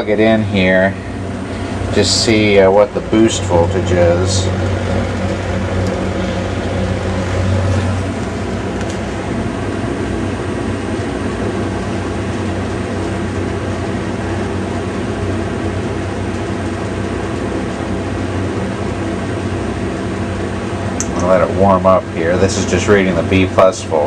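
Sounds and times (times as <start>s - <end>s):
steady low hum: 0.0s - 24.0s
even rushing noise: 0.7s - 12.3s.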